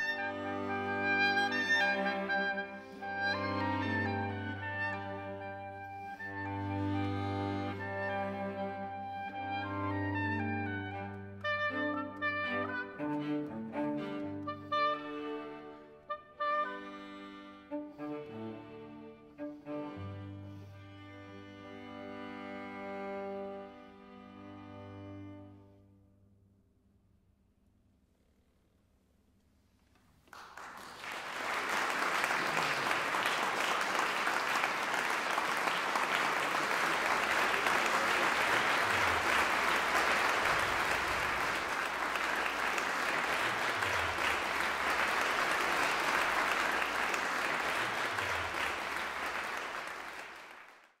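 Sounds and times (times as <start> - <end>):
audience applause: 0.0 - 5.5, 30.2 - 51.0.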